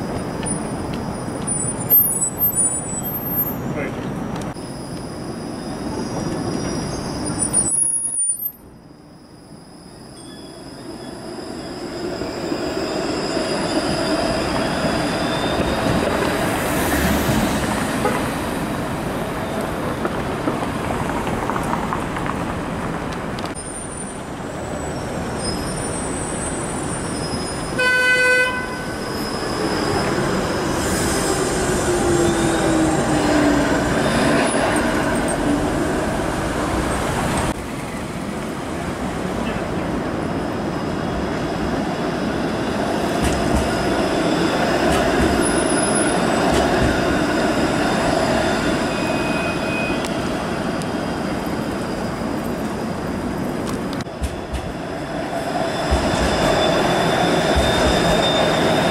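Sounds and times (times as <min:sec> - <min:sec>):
streetcar rolling past: 0:00.0 - 0:58.9
streetcar whining past: 0:00.0 - 0:58.9
streetcar horn toot: 0:27.8 - 0:29.0.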